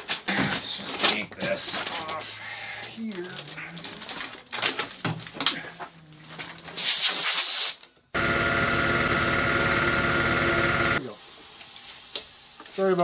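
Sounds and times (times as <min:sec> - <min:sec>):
compressed air hiss: 0:06.8 - 0:07.8, 0:11.0 - 0:12.9
air compressor running: 0:06.8 - 0:11.4.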